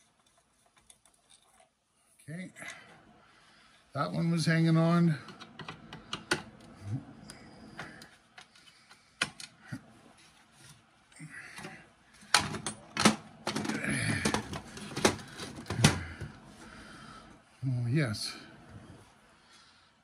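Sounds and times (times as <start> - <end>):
parts rattling: 11.5 - 16.4.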